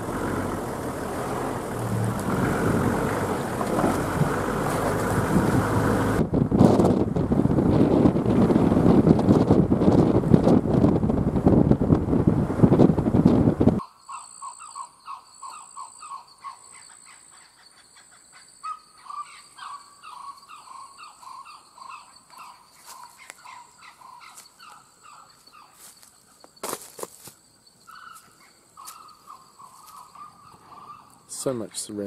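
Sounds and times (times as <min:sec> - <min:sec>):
wind buffeting microphone: 0:00.0 - 0:13.8
high insect trill: 0:13.8 - 0:31.4.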